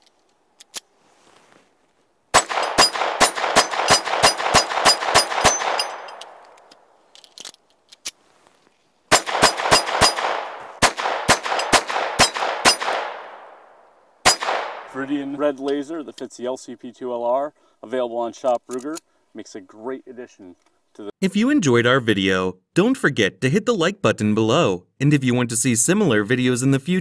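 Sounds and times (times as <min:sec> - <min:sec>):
pistol shots fired rapidly: 0:02.3 - 0:06.2, 0:09.1 - 0:13.6, 0:14.2 - 0:14.9
gunshot echo: 0:02.3 - 0:06.4, 0:09.1 - 0:15.3.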